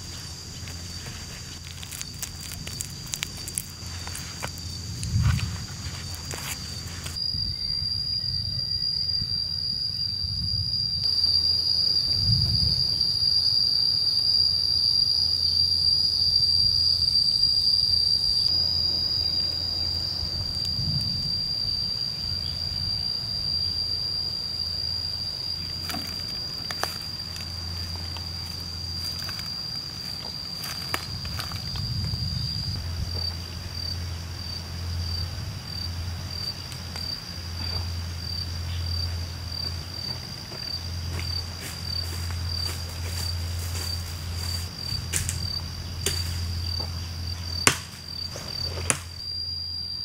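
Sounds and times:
insects droning: 0.0 - 50.0.

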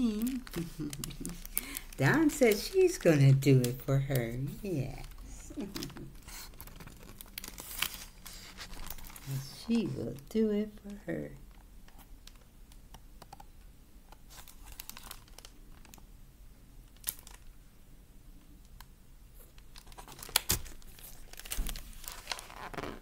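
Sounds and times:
paper rustling and crinkling: 0.0 - 10.4, 14.2 - 16.0, 19.4 - 23.0.

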